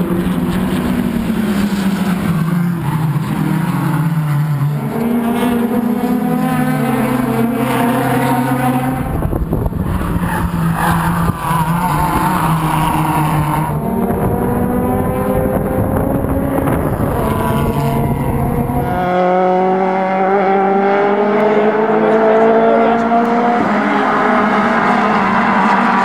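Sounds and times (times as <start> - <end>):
car accelerating: 0.0 - 26.0
race car engines running: 0.0 - 26.0
wind rumble on microphone: 9.0 - 12.3, 13.4 - 19.2.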